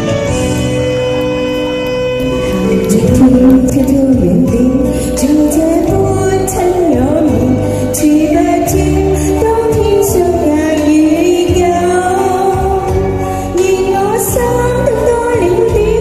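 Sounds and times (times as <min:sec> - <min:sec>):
music with steady bass beat: 0:02.5 - 0:04.5
woman singing into a microphone: 0:02.8 - 0:16.0.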